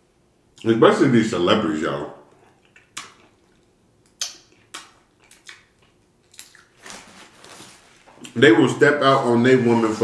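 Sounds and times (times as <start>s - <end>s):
wet mouth smacks: 2.3s - 6.8s.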